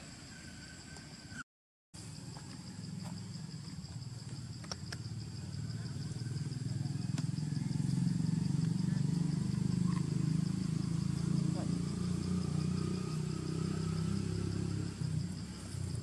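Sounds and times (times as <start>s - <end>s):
high insect buzz: 2.0s - 16.0s
engine running: 5.5s - 16.0s.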